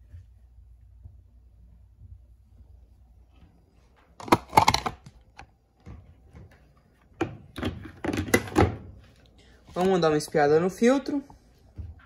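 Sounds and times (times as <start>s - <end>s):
plastic parts clattering: 4.2s - 5.2s.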